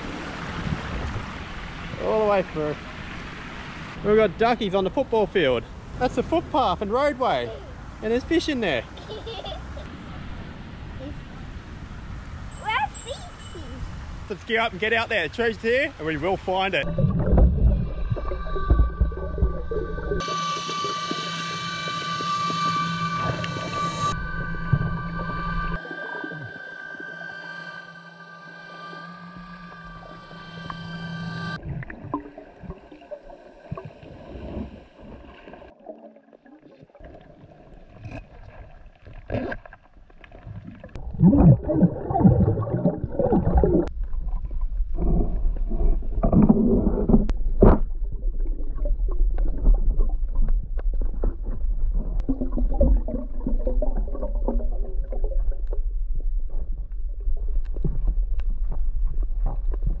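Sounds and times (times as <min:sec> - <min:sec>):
underwater water churning and bubbling: 0:16.8 - 0:28.5, 0:29.1 - 1:00.0
steady low hum: 0:16.8 - 0:31.6.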